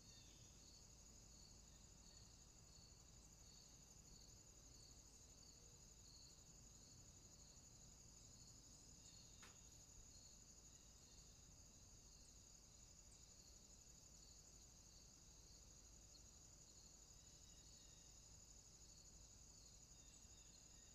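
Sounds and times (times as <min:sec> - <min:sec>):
faint click: 0:09.4 - 0:09.6.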